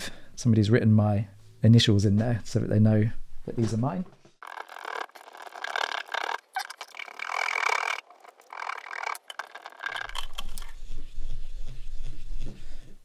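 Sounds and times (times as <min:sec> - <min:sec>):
scrubbing inside metal bore: 0:04.4 - 0:10.8.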